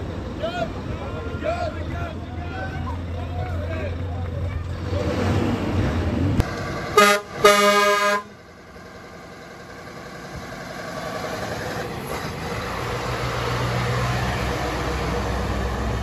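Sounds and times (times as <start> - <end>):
diesel engine rumble: 0.0 - 16.0
truck air horn: 6.9 - 8.4.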